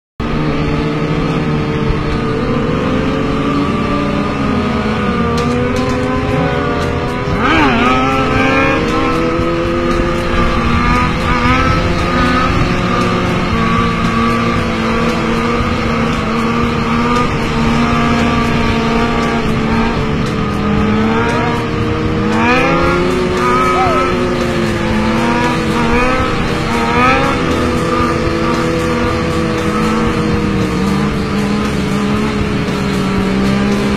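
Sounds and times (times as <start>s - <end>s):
motorcycle engines revving: 0.2s - 33.9s.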